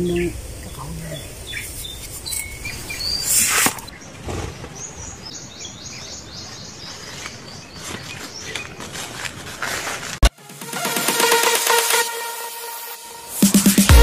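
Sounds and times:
birds chirping: 0.0s - 9.0s.

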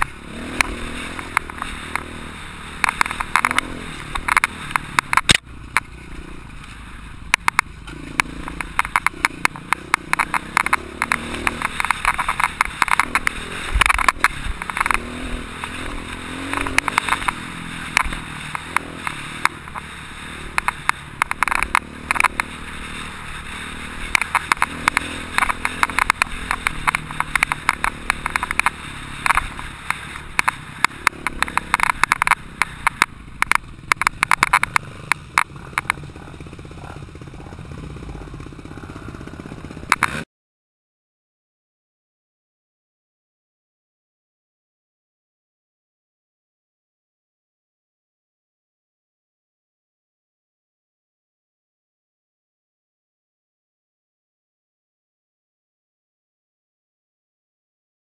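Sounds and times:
motorcycle engine revving: 0.0s - 40.3s
rattles and knocks over bumps: 7.3s - 19.9s.

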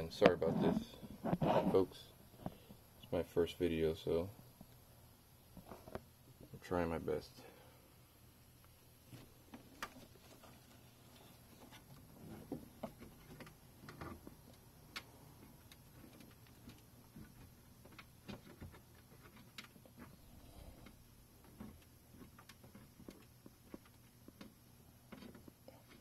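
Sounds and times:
hand fumbling among plastic parts: 9.1s - 20.2s, 20.8s - 26.0s.

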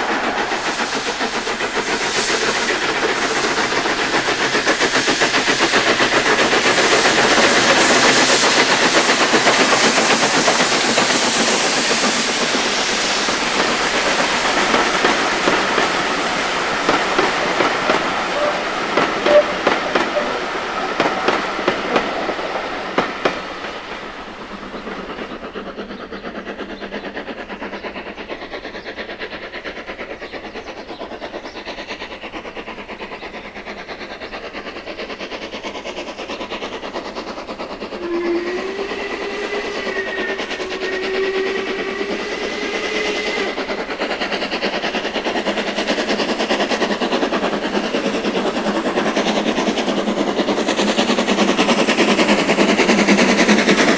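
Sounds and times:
steam train running: 0.0s - 53.9s
train whistle: 18.2s - 20.5s, 38.0s - 43.7s.

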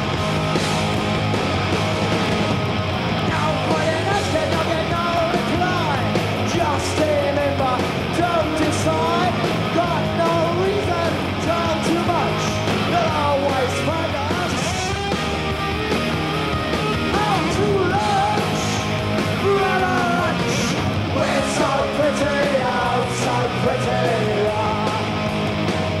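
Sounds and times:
bass guitar: 0.0s - 26.0s
drums: 0.0s - 26.0s
electric guitars: 0.0s - 26.0s
person singing: 17.1s - 25.1s.

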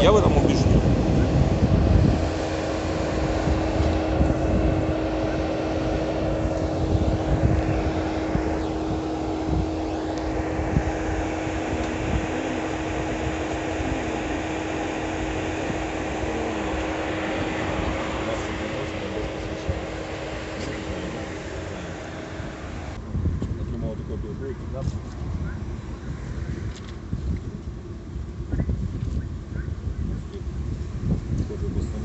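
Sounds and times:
constant low hum: 0.0s - 32.0s
street traffic rumbling: 0.0s - 32.0s.

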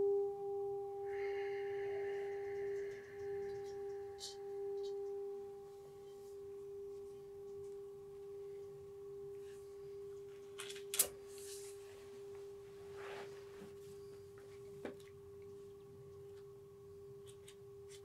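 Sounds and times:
steady ringing tone: 0.0s - 10.6s.

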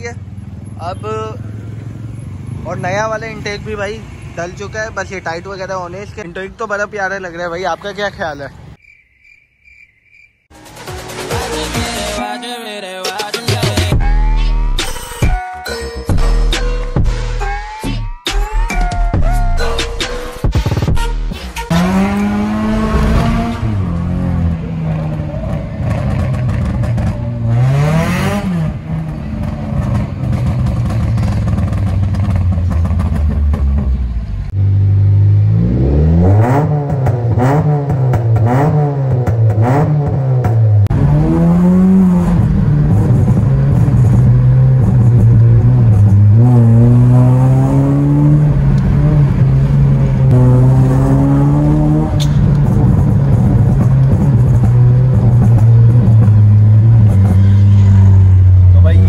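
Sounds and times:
car engine revving: 21.6s - 59.0s.

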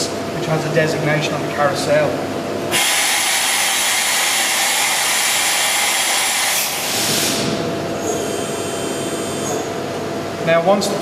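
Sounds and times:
machine mechanical hum: 0.0s - 11.0s.

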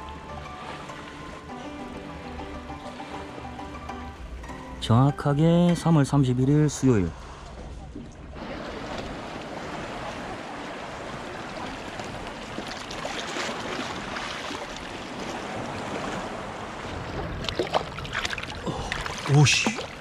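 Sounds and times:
sea water washing along rocky shore: 0.0s - 3.6s, 8.2s - 20.0s.

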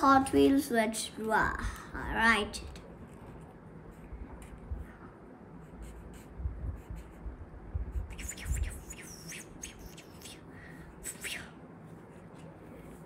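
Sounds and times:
marker scratching on paper: 5.6s - 7.3s, 7.9s - 10.4s.

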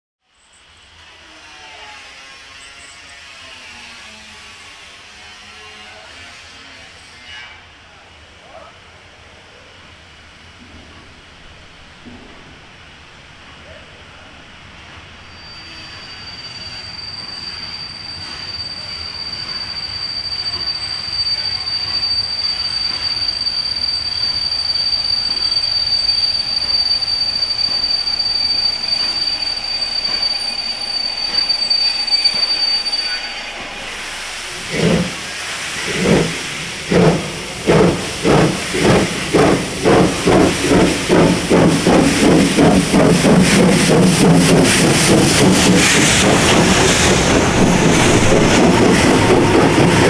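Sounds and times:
train rolling noise: 7.9s - 50.0s
thin high squeal: 15.2s - 43.0s, 43.6s - 50.0s
steam locomotive exhaust chuffing: 16.0s - 50.0s.

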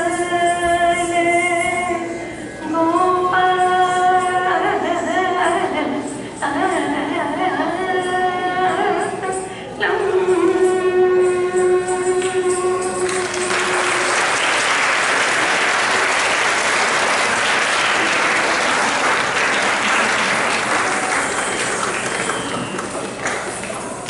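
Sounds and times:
audience applauding: 13.0s - 24.0s.

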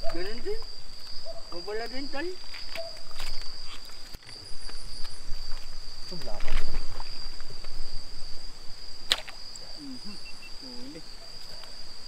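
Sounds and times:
crickets chirring: 0.0s - 12.0s
speargun snap: 9.1s - 9.6s.

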